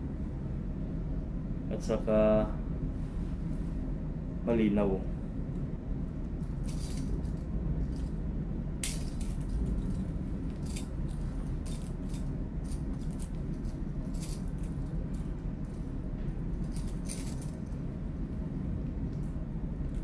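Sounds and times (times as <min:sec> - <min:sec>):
steady low hum: 0:00.0 - 0:20.0
small parts clicking and rattling: 0:06.6 - 0:08.1, 0:08.8 - 0:15.8, 0:16.5 - 0:17.8.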